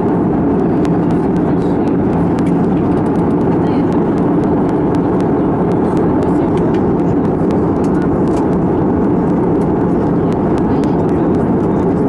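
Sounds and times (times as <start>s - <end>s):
airplane cabin engine rumble: 0.0s - 12.0s.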